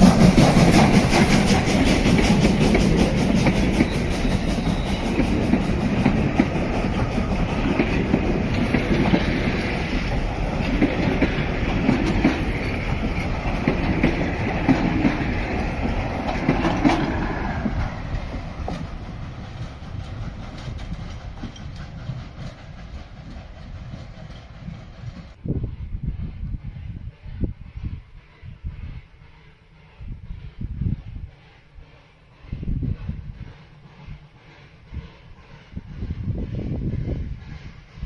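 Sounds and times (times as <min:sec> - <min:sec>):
train wheels clattering over rails: 0:00.0 - 0:25.4.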